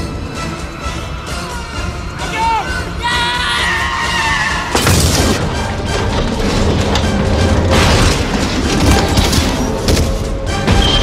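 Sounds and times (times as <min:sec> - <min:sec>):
dramatic film score music: 0:00.0 - 0:11.0
heavy truck crash: 0:04.8 - 0:11.0.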